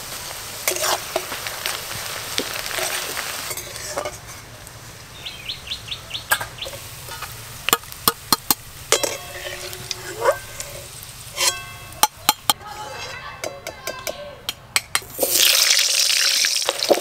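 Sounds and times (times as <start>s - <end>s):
onions sizzling in oil: 0.0s - 13.2s, 15.0s - 17.0s
bird chirping: 5.1s - 7.4s
metal spoon clinking on pan: 11.4s - 12.5s.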